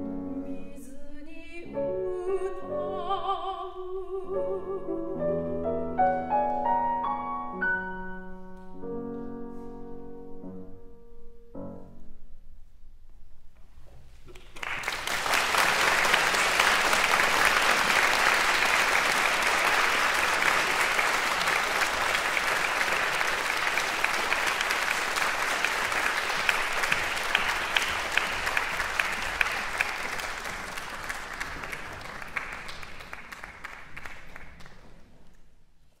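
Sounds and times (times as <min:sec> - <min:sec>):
audience applauding: 0:14.3 - 0:35.4.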